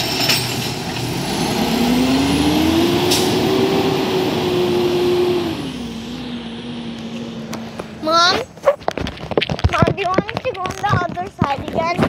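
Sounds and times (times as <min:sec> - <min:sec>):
garbage truck engine pulling away: 0:00.0 - 0:08.6.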